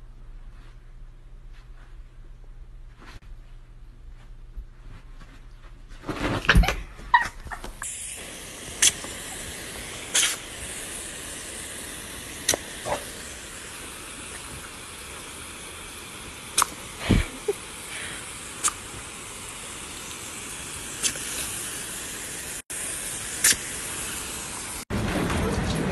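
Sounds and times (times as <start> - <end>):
garden hose spraying water: 7.1 - 24.9.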